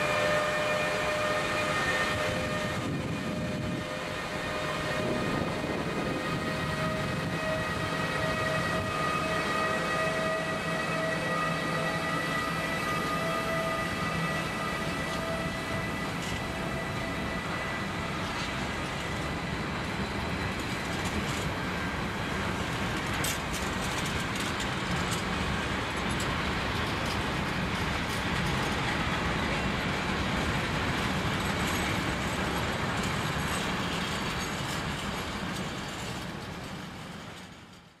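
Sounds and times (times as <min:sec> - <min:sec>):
train wheels rumbling on rail: 0:00.0 - 0:38.0.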